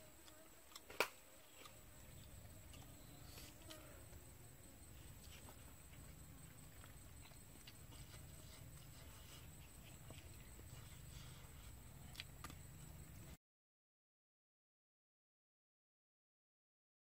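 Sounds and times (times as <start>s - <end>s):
faint low hum: 0.0s - 13.4s.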